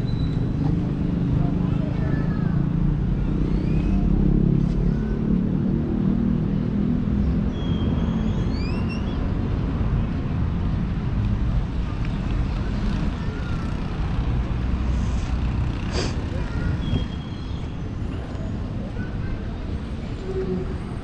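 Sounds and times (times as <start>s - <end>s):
street traffic rumbling: 0.0s - 21.0s
vehicle engine hum: 9.3s - 21.0s.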